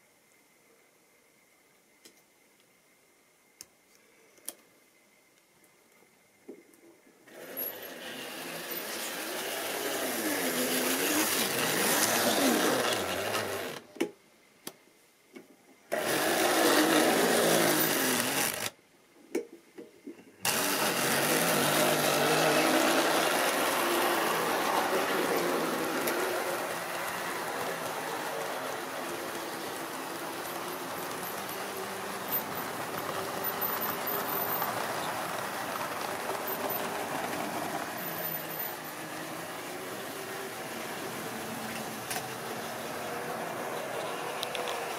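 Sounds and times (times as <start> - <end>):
model train motor whirring: 7.3 - 13.8, 15.9 - 18.8, 20.4 - 44.9
train wheels clattering on rails: 20.5 - 44.9.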